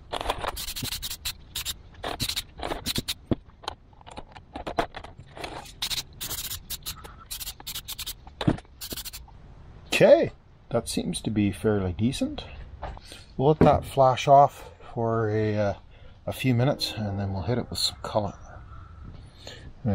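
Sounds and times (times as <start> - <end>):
aerosol can spraying: 0.6 - 3.2, 5.7 - 8.2, 8.8 - 9.2.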